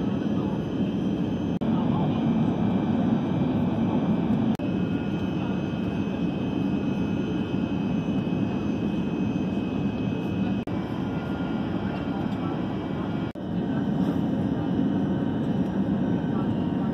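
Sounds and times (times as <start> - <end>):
airplane cabin drone: 0.0 - 16.9.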